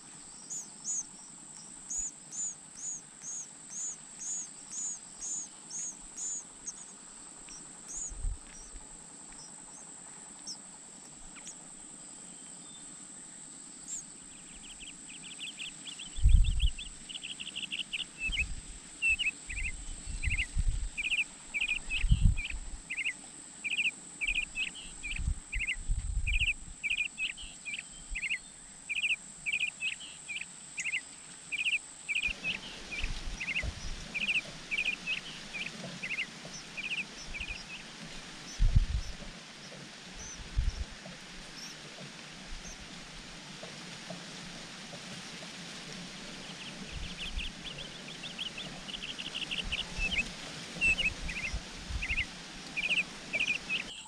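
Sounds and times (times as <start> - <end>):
nestlings begging chirps: 0.0 - 10.7, 13.8 - 41.9, 46.1 - 54.0.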